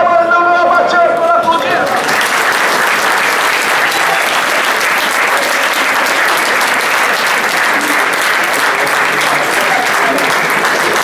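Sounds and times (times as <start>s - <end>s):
crowd clapping: 1.2s - 11.0s.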